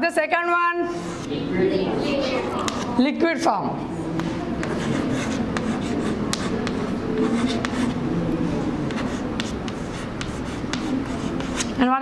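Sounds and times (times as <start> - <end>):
chalk tapping and scratching: 2.6 - 2.9, 4.2 - 8.0, 8.8 - 11.9.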